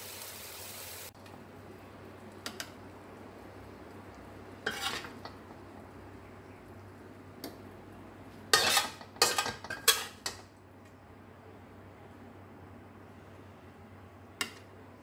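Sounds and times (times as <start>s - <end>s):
metal utensil scraping metal pan: 4.6s - 5.4s, 8.5s - 10.4s.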